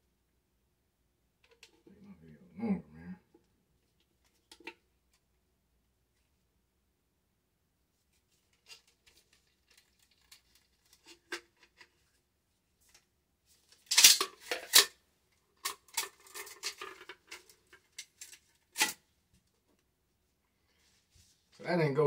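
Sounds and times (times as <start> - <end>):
metal-on-metal clatter: 13.9 - 14.9.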